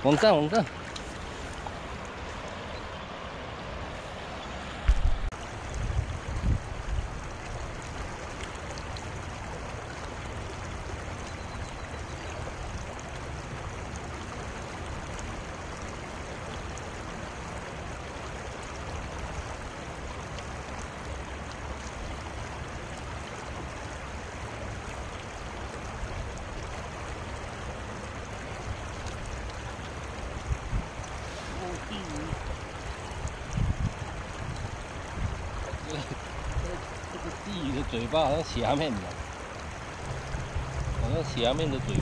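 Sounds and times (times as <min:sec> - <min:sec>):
river flowing over stones: 0:00.0 - 0:42.0
low rumble: 0:39.9 - 0:42.0.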